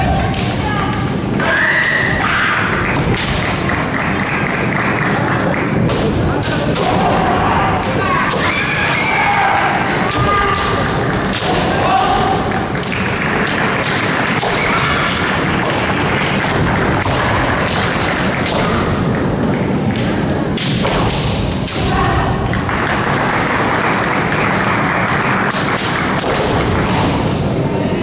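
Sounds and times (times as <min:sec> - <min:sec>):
busy hall noise: 0:00.0 - 0:28.0
bamboo swords clacking: 0:09.6 - 0:12.2, 0:12.8 - 0:22.2.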